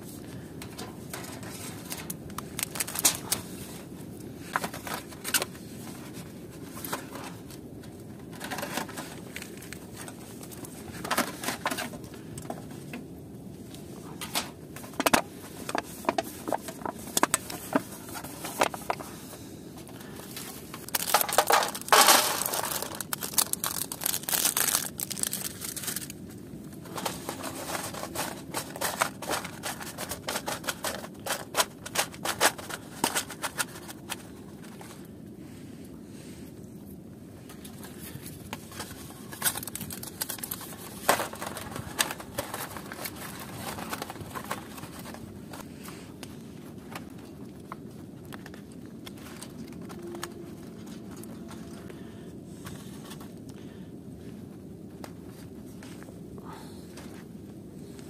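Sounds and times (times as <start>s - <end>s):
foil trays crinkling: 0.3s - 12.7s, 14.0s - 35.1s, 37.5s - 53.7s
wood chips rattling into foil tray: 20.8s - 26.1s.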